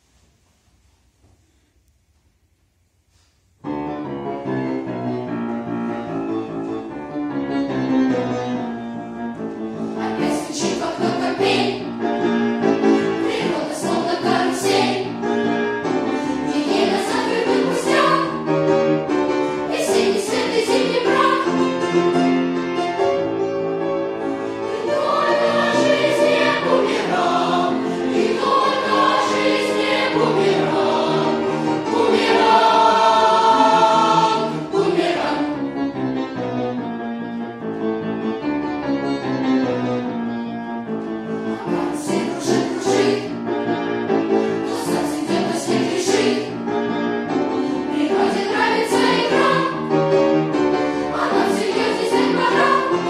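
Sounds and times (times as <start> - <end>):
grand piano accompaniment: 0.0 - 53.0
boys' choir singing: 9.8 - 22.2, 24.2 - 35.8, 41.5 - 43.5, 44.4 - 46.7, 47.5 - 53.0.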